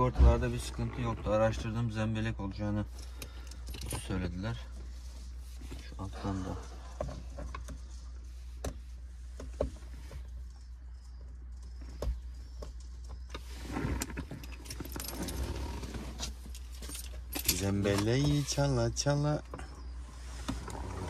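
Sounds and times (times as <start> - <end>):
rustling handling noise: 2.8 - 21.0.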